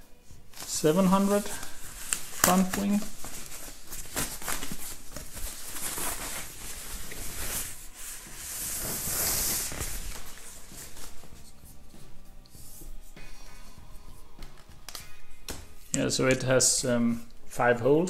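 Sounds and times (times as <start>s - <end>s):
plastic wrapping rustling: 0.4s - 11.6s.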